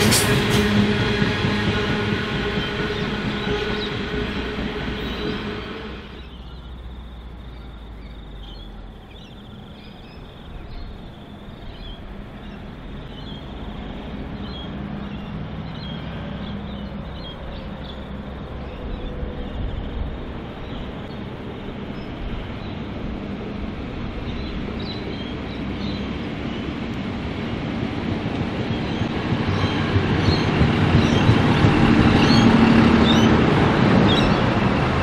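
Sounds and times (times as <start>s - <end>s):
diesel railcar approaching: 0.0s - 35.0s
train rumbling: 0.0s - 35.0s
birds chirping: 28.6s - 35.0s.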